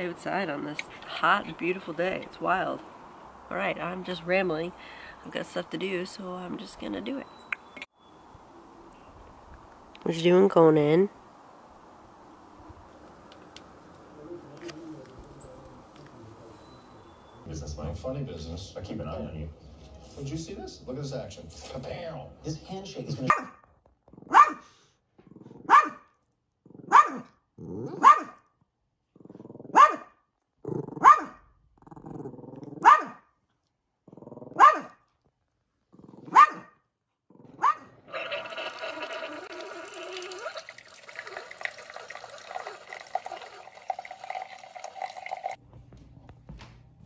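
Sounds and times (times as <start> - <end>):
small dog barking: 23.3 - 23.6, 24.2 - 24.6, 25.6 - 26.1, 26.8 - 27.3, 27.9 - 28.4, 29.7 - 30.2, 31.0 - 31.4, 32.8 - 33.3, 34.5 - 35.0, 36.2 - 36.8, 37.6 - 38.0
dog growling: 27.6 - 28.1, 29.1 - 29.8, 30.6 - 31.1, 31.7 - 32.9, 34.0 - 34.9, 35.9 - 36.4, 37.3 - 40.5
coffee maker brewing hiss and hum: 38.2 - 45.6.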